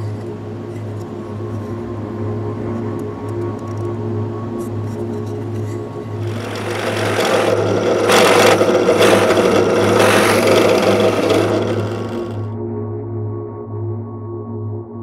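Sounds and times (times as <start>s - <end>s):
power drill boring into wood: 6.2s - 12.5s.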